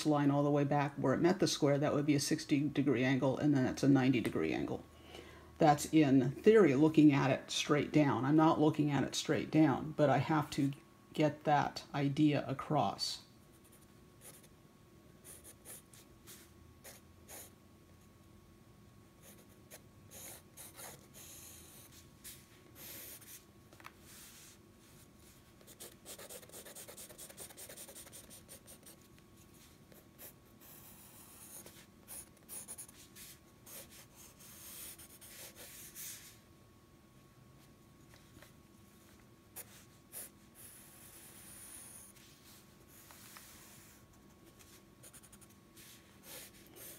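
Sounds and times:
pencil scratching on paper: 15.2s - 17.5s, 19.2s - 23.4s, 25.6s - 36.4s, 39.6s - 46.9s.

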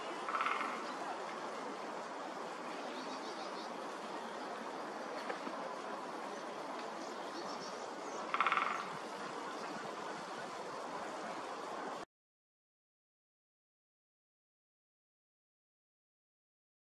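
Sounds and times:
rushing background noise: 0.0s - 12.1s
woodpecker drumming: 0.2s - 1.0s, 8.2s - 9.2s.

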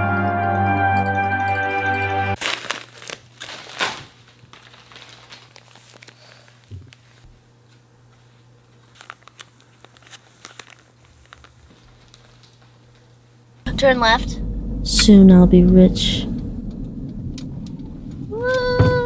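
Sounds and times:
paper envelope tearing: 2.4s - 6.4s, 8.9s - 11.5s
paper crinkling and rustling: 2.4s - 12.8s.

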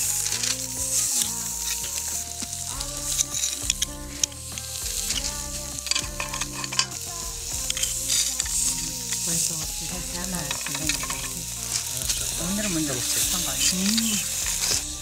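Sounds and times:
hot stones sizzling: 0.0s - 15.0s
metal tongs clicking on stone: 5.9s - 7.0s.

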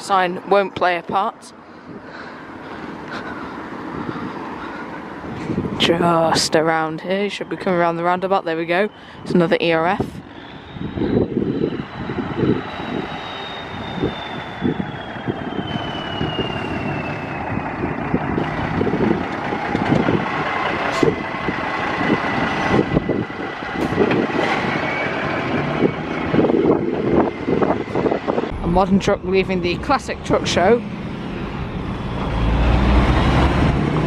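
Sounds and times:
high engine whine: 0.0s - 34.0s
lorry diesel engine running: 0.0s - 34.0s.

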